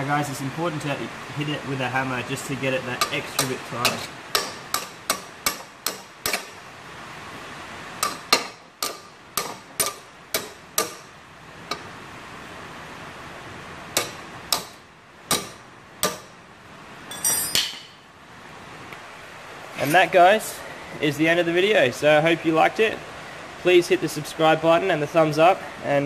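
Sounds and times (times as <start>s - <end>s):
hammer striking metal: 3.0s - 6.6s, 8.0s - 11.1s, 14.0s - 16.3s, 17.1s - 18.0s
rain hissing: 6.5s - 15.9s.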